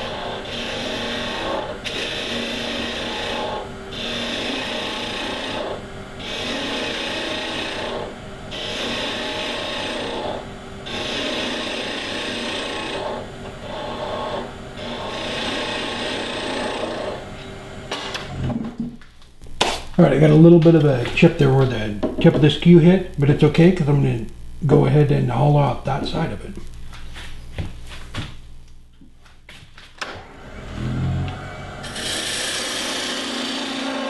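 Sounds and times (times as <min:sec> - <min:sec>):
chisel shaving wood on lathe: 0:00.0 - 0:17.6, 0:30.8 - 0:34.0
lathe humming: 0:00.0 - 0:18.8, 0:30.0 - 0:34.0.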